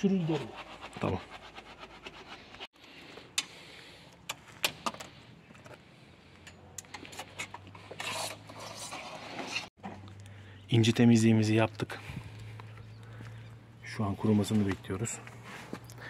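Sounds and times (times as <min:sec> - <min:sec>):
tools scraping dirt: 0:04.3 - 0:10.0.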